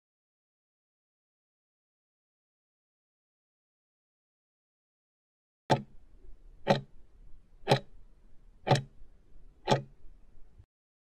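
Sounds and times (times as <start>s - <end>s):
timer ticking: 5.7s - 6.0s, 6.6s - 7.0s, 7.6s - 8.0s, 8.6s - 9.0s, 9.6s - 10.0s.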